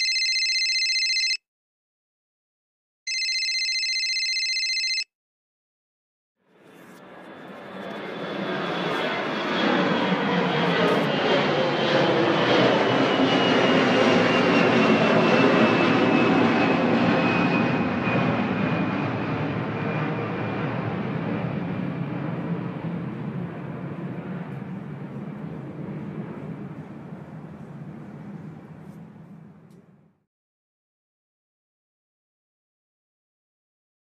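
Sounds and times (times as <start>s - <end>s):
jet engines whining: 6.5s - 30.2s.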